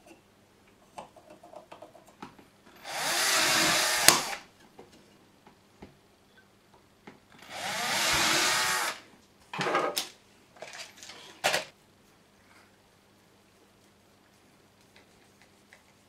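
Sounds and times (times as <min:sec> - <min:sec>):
cordless drill drilling: 0:02.8 - 0:04.4, 0:07.4 - 0:09.0
knocks and rustles of handling: 0:04.5 - 0:06.0, 0:09.2 - 0:16.0.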